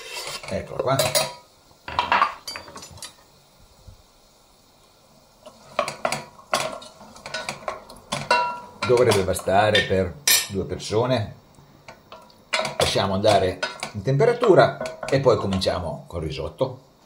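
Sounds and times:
utensils clinking against dishes: 5.8 - 10.6, 13.6 - 14.0.

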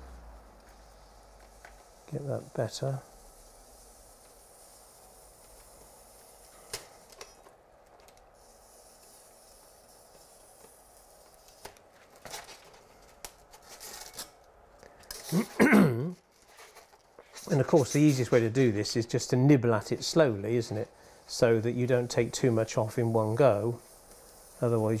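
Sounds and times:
hot-wire cutter crackling foam: 0.6 - 14.5, 20.1 - 25.0.

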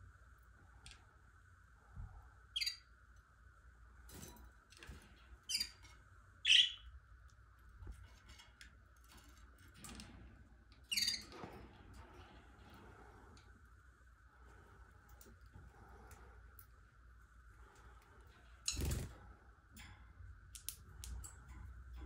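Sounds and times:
faint steady hum: 0.0 - 22.0
canaries chirping: 5.5 - 6.9.

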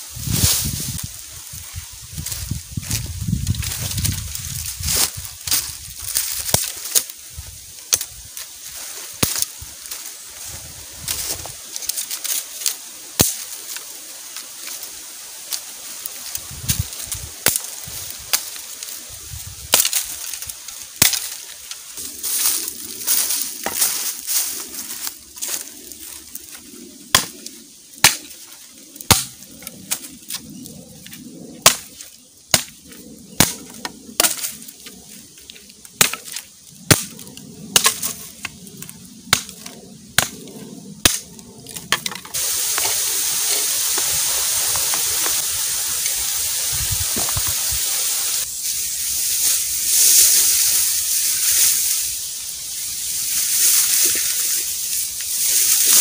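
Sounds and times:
steady rushing hiss: 0.0 - 56.0
machete chopping bamboo: 9.2 - 9.5, 13.2 - 13.4, 19.7 - 20.0, 21.0 - 21.4, 27.1 - 27.3, 28.0 - 28.3, 29.1 - 29.4, 31.6 - 32.8, 33.4 - 34.6, 36.0 - 37.2, 37.8 - 38.1, 40.2 - 40.4, 41.0 - 41.2.

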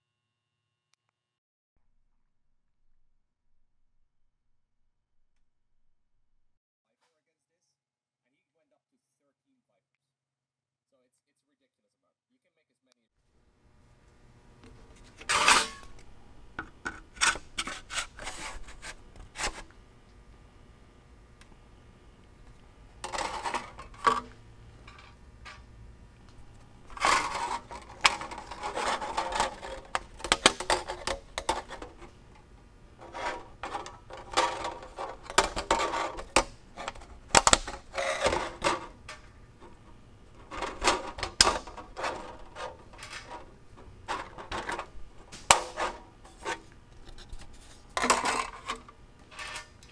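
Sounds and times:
hand saw parts clicking and knocking: 26.9 - 32.4, 33.0 - 47.2.

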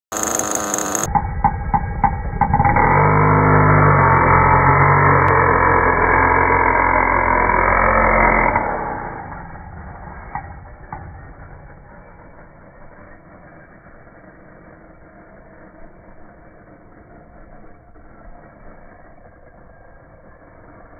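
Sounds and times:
model truck engine revving: 0.1 - 1.2, 2.0 - 13.0
tyres spinning: 0.1 - 12.5.

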